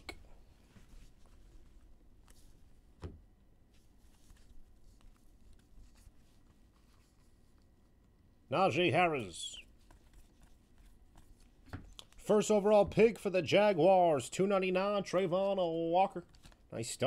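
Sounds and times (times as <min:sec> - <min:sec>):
trading cards being handled: 0:08.8 - 0:12.6, 0:16.2 - 0:16.8.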